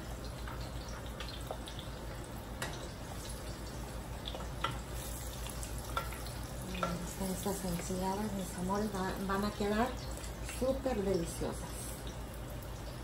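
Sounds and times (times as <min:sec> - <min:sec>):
tortillas sizzling in oil: 0:00.0 - 0:13.0
metal tongs clicking in pan: 0:05.9 - 0:07.1.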